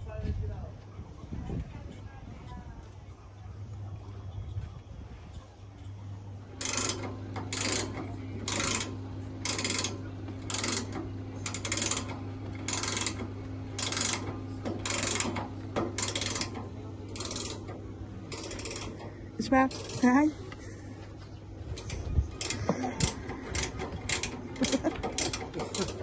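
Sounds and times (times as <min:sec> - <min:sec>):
steady low hum: 0:00.0 - 0:26.0
ratcheting tool strokes: 0:06.6 - 0:13.2, 0:13.8 - 0:17.7.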